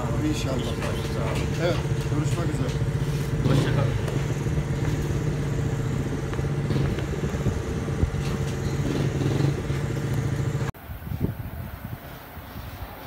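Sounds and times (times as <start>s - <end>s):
small motorcycle engine running: 0.0s - 10.7s.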